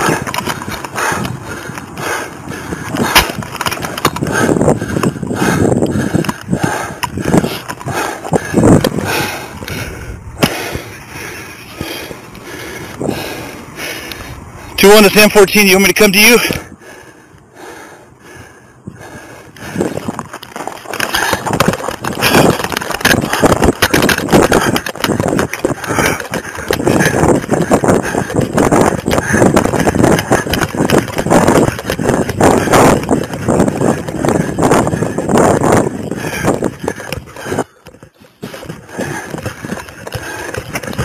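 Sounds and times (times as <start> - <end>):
footfalls and gear knocking: 2.9 - 9.7, 19.8 - 41.0.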